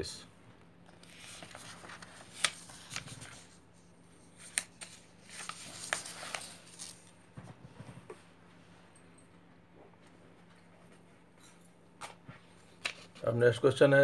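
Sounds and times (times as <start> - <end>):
paper rustling and crinkling: 0.9 - 3.6, 4.2 - 7.2.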